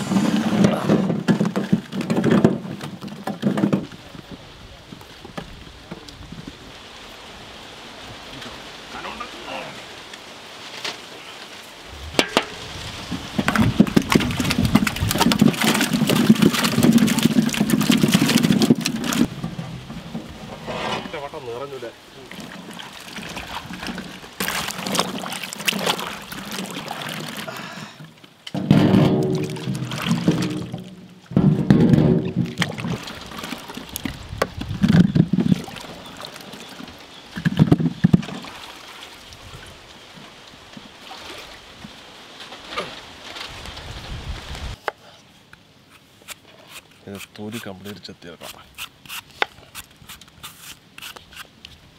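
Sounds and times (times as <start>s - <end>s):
apples clattering and splashing: 0.0s - 4.1s, 10.6s - 39.4s
water sloshing in a pot: 12.0s - 19.3s, 22.2s - 27.6s, 28.6s - 34.2s
sharp knocks: 12.1s - 12.6s.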